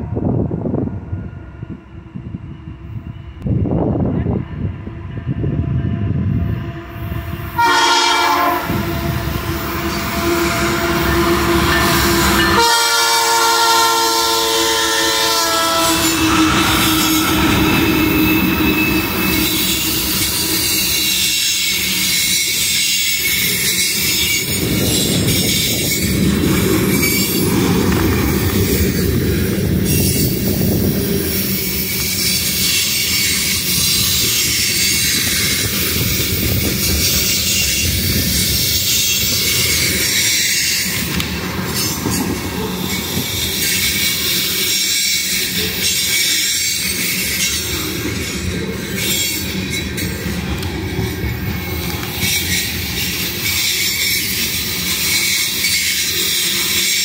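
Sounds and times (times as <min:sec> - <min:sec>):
freight train rolling by: 0:00.0 - 0:57.0
locomotive horn blasts: 0:07.6 - 0:21.0
high wheel squeal: 0:07.6 - 0:57.0
clickety-clack of rail joints: 0:15.5 - 0:57.0.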